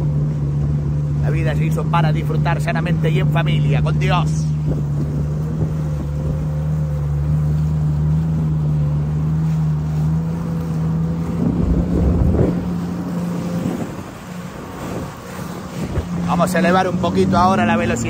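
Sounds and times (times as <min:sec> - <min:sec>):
jet ski engine humming: 0:00.0 - 0:18.0
water splashing against hull: 0:00.0 - 0:18.0.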